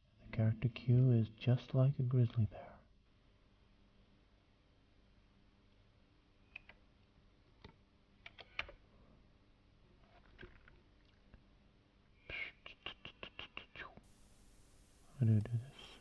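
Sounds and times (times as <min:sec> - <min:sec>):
mouse and keyboard clicks: 0:06.5 - 0:06.8, 0:07.6 - 0:08.8.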